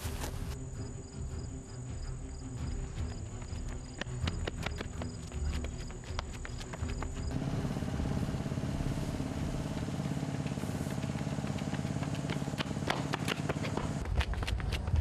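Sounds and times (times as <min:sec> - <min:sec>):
small engine idling: 0:06.0 - 0:14.0.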